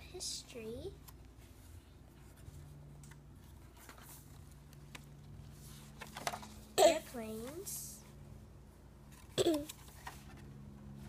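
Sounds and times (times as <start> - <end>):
low steady hum: 0.0 - 11.0
book pages rustling: 1.0 - 6.7, 9.1 - 11.0.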